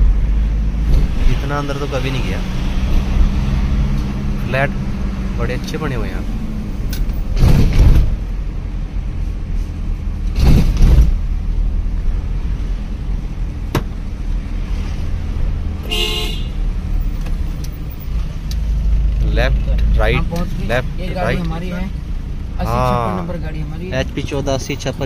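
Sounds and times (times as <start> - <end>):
car engine and road rumble: 0.0 - 25.0
car horn honk: 15.8 - 16.6.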